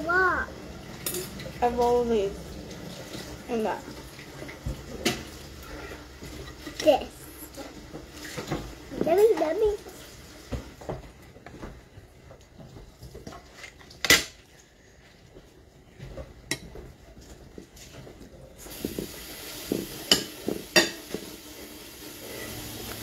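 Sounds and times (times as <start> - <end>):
cutlery clinking on plates: 19.7 - 21.3.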